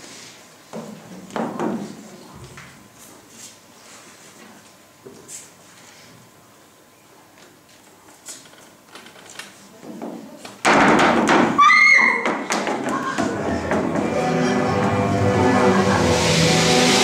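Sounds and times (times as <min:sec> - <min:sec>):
steady tones: 0:13.0 - 0:17.0
loud rush of noise: 0:13.3 - 0:17.0.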